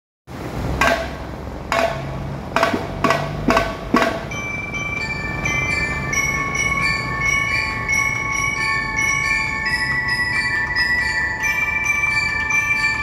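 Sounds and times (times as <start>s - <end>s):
sharp percussion strikes: 0.8s - 13.0s
held bell-like high notes: 4.2s - 13.0s.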